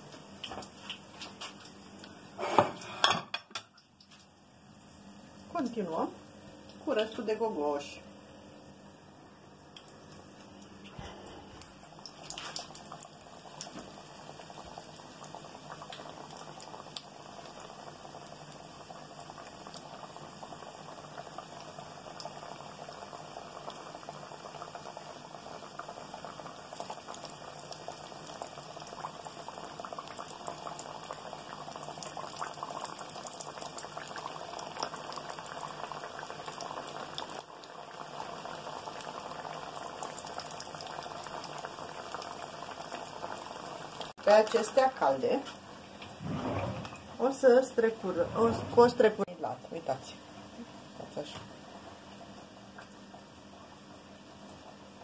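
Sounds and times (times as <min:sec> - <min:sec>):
doughnuts sizzling in hot oil: 0:11.7 - 0:45.8.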